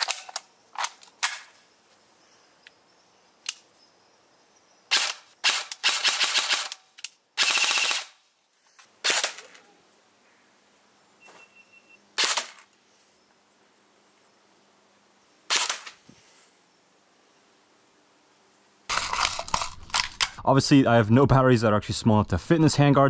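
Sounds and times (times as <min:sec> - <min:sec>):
airsoft rifle shots: 0:04.9 - 0:06.8, 0:07.4 - 0:08.2, 0:09.0 - 0:09.6, 0:12.2 - 0:12.7, 0:15.5 - 0:16.0.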